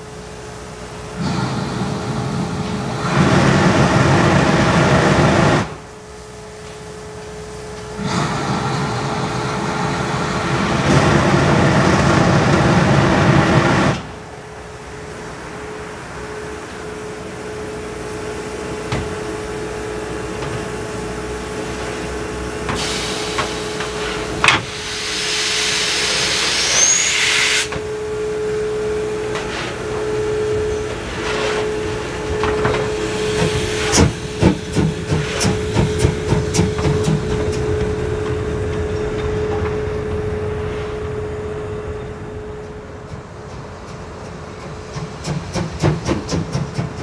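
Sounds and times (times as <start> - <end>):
steam locomotive hissing: 0.0 - 14.5, 15.3 - 47.0
steam locomotive exhaust chuffs: 0.0 - 47.0
loud blast of escaping steam: 0.9 - 6.4, 7.5 - 14.2, 20.9 - 37.8.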